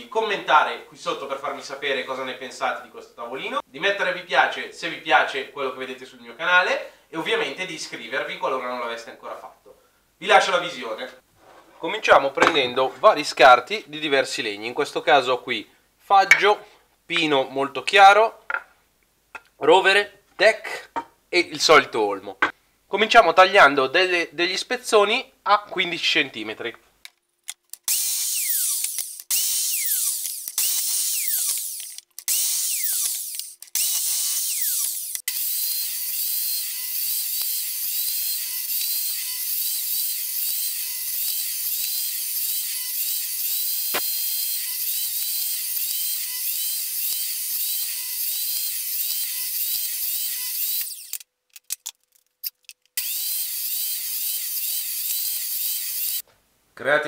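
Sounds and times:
mitre saw cutting wood: 0:27.9 - 0:51.2, 0:53.0 - 0:56.2
saw blade winding down whine: 0:27.9 - 0:51.2, 0:53.0 - 0:56.2
table saw running: 0:27.9 - 0:51.2, 0:53.0 - 0:56.2.

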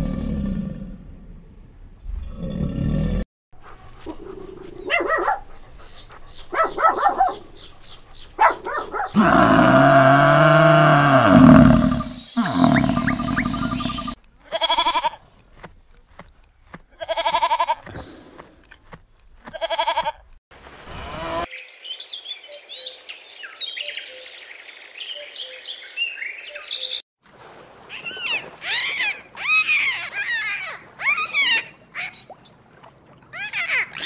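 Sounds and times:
cow mooing: 0:09.2 - 0:15.0
goat bleating: 0:14.4 - 0:15.2, 0:16.9 - 0:17.8, 0:19.5 - 0:20.2.

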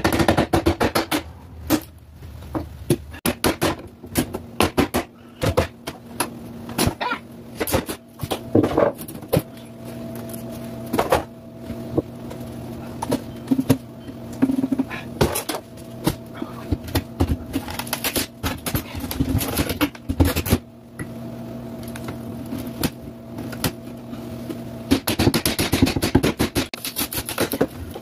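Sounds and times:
low hum: 0:05.1 - 0:24.9.

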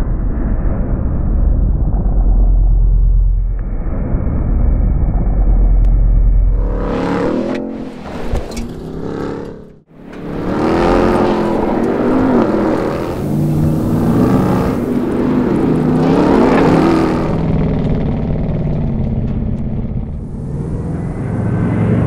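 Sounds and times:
truck engine revving hard: 0:06.5 - 0:22.0.

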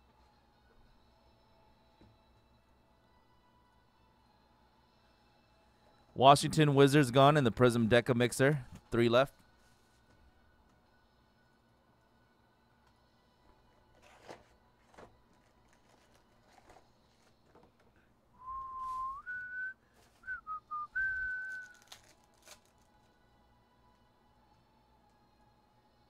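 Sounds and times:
person whistling a tune: 0:18.4 - 0:22.0.

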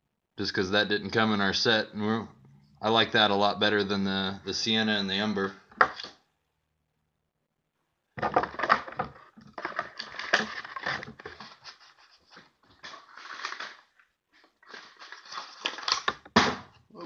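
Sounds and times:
packing material crinkling: 0:08.4 - 0:16.2.

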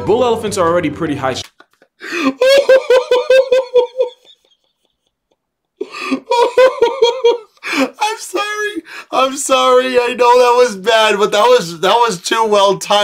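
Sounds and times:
man laughing hard: 0:01.7 - 0:08.0.

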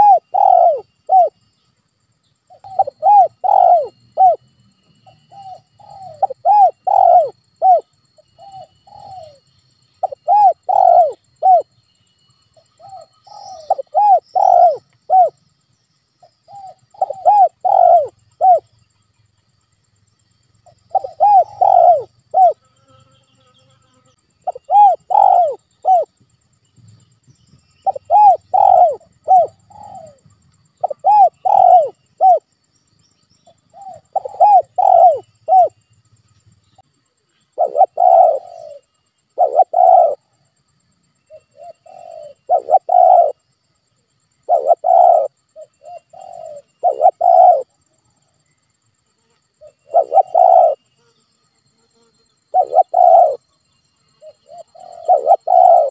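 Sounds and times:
dove cooing: 0:00.0 - 0:01.4, 0:02.5 - 0:11.7, 0:12.8 - 0:15.4, 0:16.4 - 0:18.7, 0:20.7 - 0:22.6, 0:24.4 - 0:26.1, 0:27.8 - 0:32.5, 0:33.7 - 0:35.8, 0:37.5 - 0:40.3, 0:41.3 - 0:43.4, 0:44.4 - 0:47.8, 0:49.6 - 0:50.8, 0:52.5 - 0:53.4, 0:54.2 - 0:55.9.

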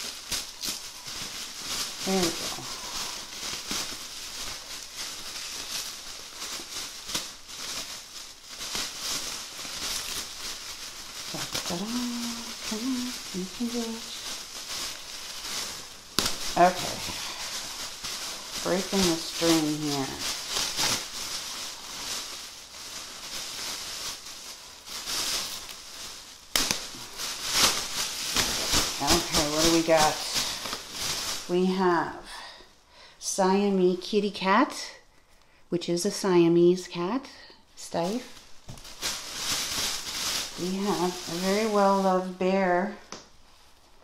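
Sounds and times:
packaging rustling and crinkling: 0:00.0 - 0:32.7, 0:37.9 - 0:44.0
string snapping: 0:26.5 - 0:26.9.

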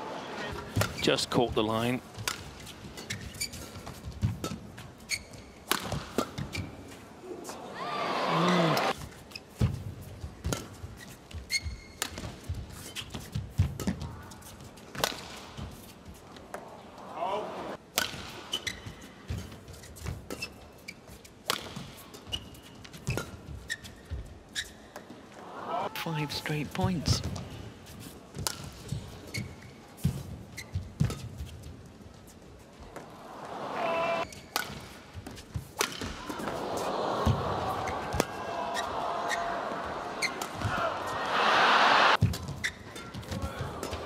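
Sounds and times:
crowd cheering: 0:00.0 - 0:00.6, 0:07.4 - 0:09.0, 0:16.6 - 0:17.8, 0:25.3 - 0:27.2, 0:33.0 - 0:34.2, 0:36.1 - 0:42.2, 0:43.4 - 0:44.0
court shoes squeaking: 0:00.5 - 0:01.2, 0:02.2 - 0:07.6, 0:08.4 - 0:14.7, 0:18.4 - 0:33.2, 0:34.1 - 0:36.6, 0:37.2 - 0:41.2, 0:42.1 - 0:44.0
racket striking shuttlecock: 0:05.7 - 0:06.4, 0:17.9 - 0:18.4, 0:34.4 - 0:35.0, 0:35.8 - 0:36.2
rackets striking shuttlecock: 0:34.3 - 0:35.0, 0:35.8 - 0:36.2.

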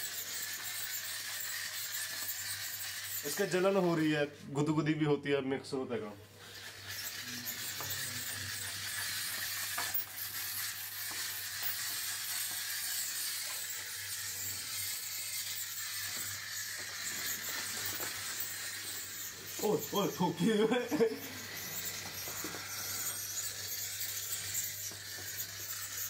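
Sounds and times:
spray machine hissing: 0:06.4 - 0:26.0.

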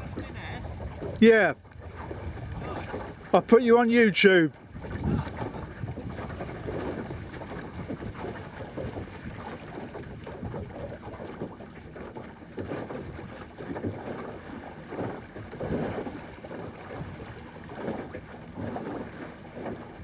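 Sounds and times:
wind rushing over microphone: 0:00.0 - 0:03.2, 0:04.6 - 0:11.0
water washing along hull: 0:00.0 - 0:20.0.

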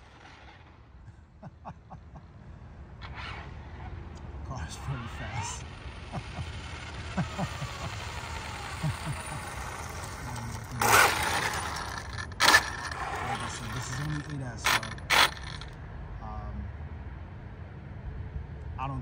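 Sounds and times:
rc car motor whine: 0:00.0 - 0:00.9, 0:03.0 - 0:15.8.

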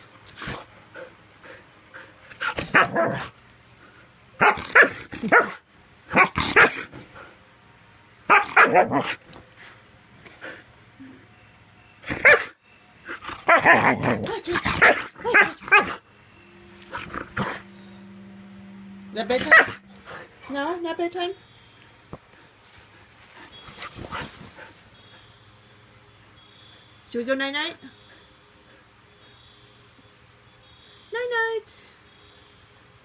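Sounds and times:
dog barking: 0:04.4 - 0:06.9, 0:08.3 - 0:09.2, 0:12.2 - 0:12.6, 0:13.4 - 0:16.0, 0:19.4 - 0:19.8.

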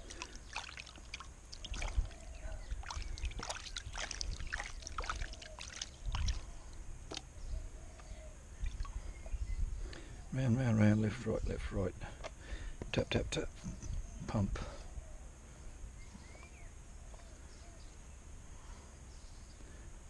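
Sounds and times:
water sloshing in a pan: 0:00.0 - 0:06.6
sand and gravel rattling: 0:00.0 - 0:07.3.

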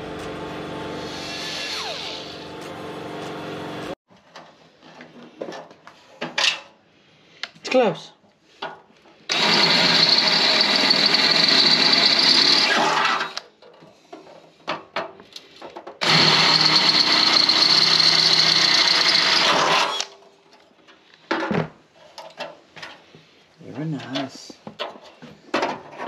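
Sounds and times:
drill boring through metal: 0:00.9 - 0:02.4, 0:09.3 - 0:13.4, 0:16.0 - 0:20.1.

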